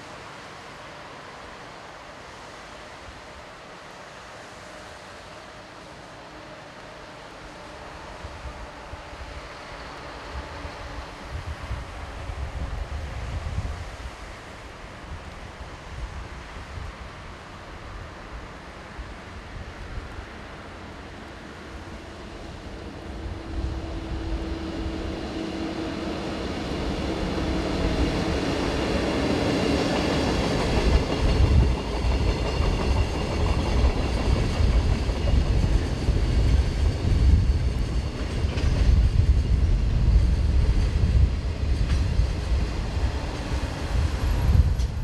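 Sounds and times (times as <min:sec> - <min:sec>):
locomotive hum: 0:18.2 - 0:45.0
train wheels clattering on rails: 0:21.7 - 0:45.0.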